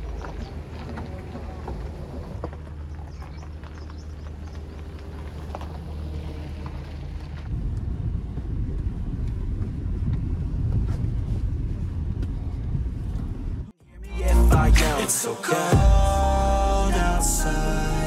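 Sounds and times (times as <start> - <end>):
car driving over rough dirt road: 0.0 - 13.7
car engine humming: 0.0 - 18.0.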